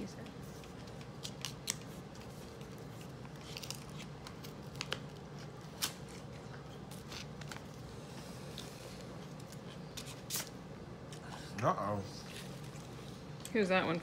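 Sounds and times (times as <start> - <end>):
paper rustling and crinkling: 0.4 - 7.8.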